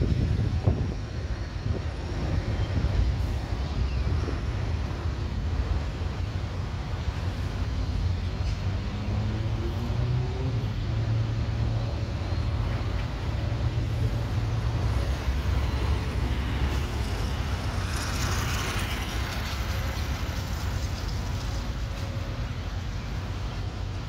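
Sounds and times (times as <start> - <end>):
low rumble of street traffic: 0.0 - 24.0
vehicle passing by: 8.8 - 21.5.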